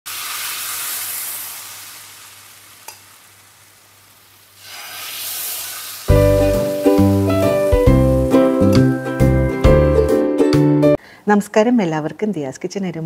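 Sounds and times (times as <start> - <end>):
batter sizzling on hot pan: 0.1 - 9.6.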